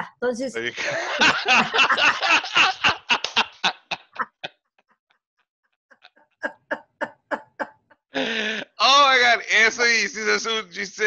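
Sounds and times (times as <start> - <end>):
people laughing: 0.6 - 4.5, 8.2 - 11.0.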